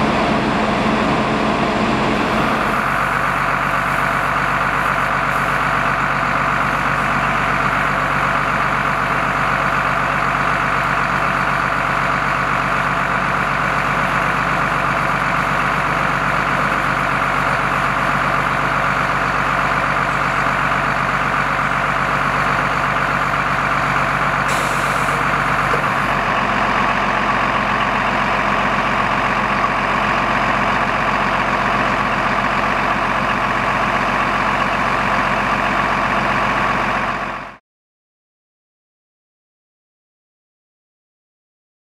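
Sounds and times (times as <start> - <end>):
fire engine pump running: 0.0 - 37.6
hose spraying water: 3.7 - 5.6, 24.5 - 26.1.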